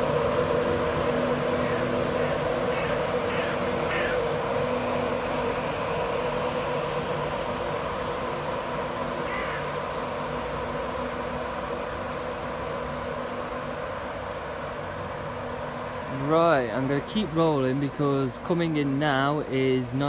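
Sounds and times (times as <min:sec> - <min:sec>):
electric train pulling away: 0:00.0 - 0:20.0
crow cawing: 0:01.0 - 0:04.2, 0:09.2 - 0:09.8, 0:15.6 - 0:16.2.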